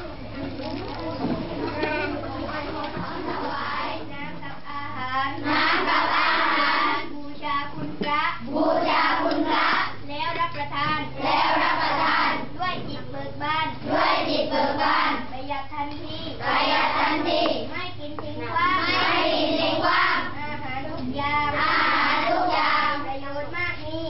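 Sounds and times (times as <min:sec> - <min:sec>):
children chanting in unison: 0:05.3 - 0:07.1, 0:08.4 - 0:10.0, 0:11.0 - 0:12.6, 0:13.8 - 0:15.3, 0:16.4 - 0:17.7, 0:18.5 - 0:20.4, 0:21.4 - 0:23.5.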